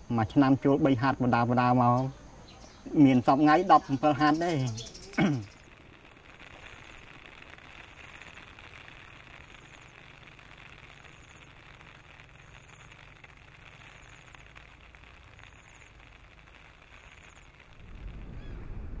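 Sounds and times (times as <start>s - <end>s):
steady hiss: 0.0s - 19.0s
low rumble: 17.6s - 19.0s.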